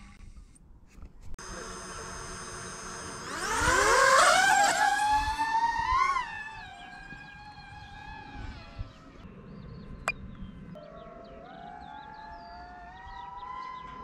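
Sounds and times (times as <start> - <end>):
drone motors whining: 1.4 - 9.0.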